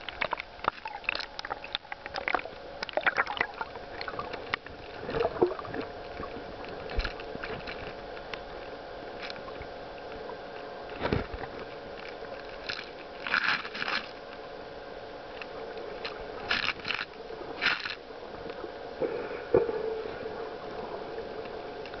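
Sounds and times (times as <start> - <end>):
muffled underwater hum: 0.0 - 22.0
short scraping crackling bursts: 10.9 - 14.2, 16.0 - 18.0.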